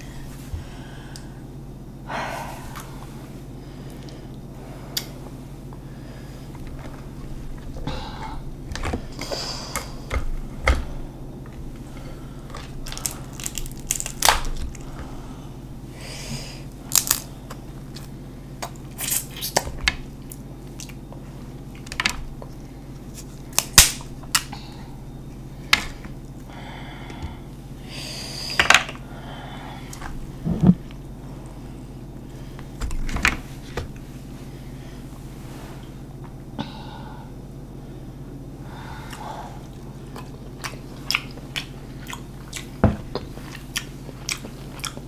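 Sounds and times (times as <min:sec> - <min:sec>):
crab shells cracking: 0:12.6 - 0:14.9, 0:16.9 - 0:17.4
chewing: 0:39.1 - 0:45.0.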